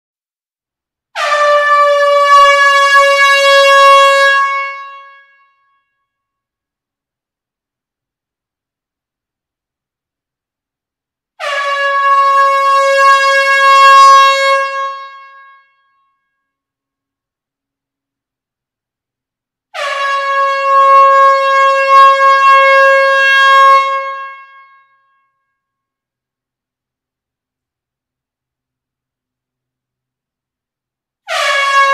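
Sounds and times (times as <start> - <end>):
loud horn blast: 1.2 - 5.6, 11.4 - 15.8, 19.8 - 25.0, 31.3 - 31.9.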